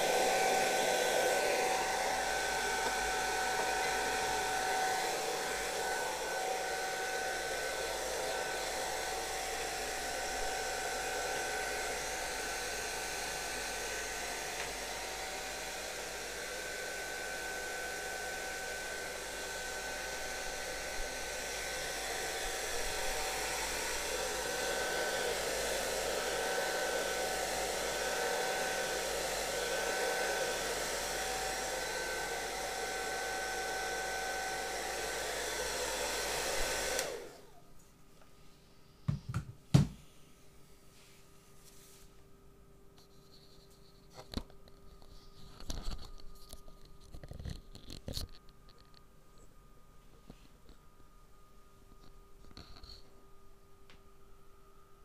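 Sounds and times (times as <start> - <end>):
hair dryer blowing: 0.0 - 37.7.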